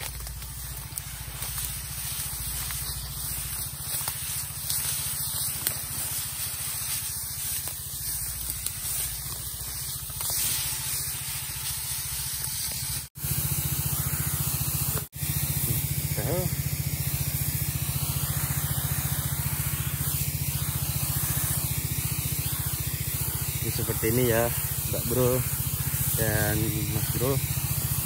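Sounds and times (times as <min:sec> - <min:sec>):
hose sprayer hissing: 0:00.0 - 0:28.0.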